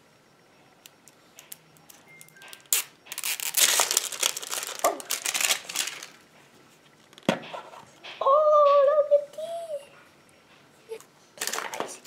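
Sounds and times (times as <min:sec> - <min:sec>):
plastic packaging tearing and crumpling: 0:02.5 - 0:06.2, 0:11.4 - 0:11.8.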